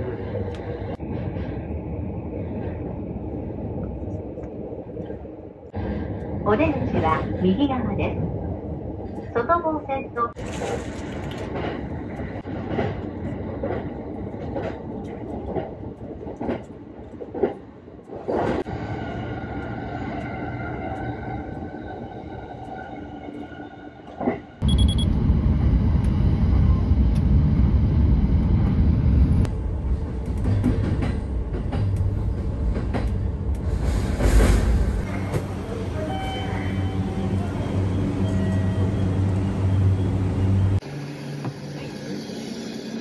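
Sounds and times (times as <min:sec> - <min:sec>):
train rumbling on rails: 0:00.0 - 0:43.0.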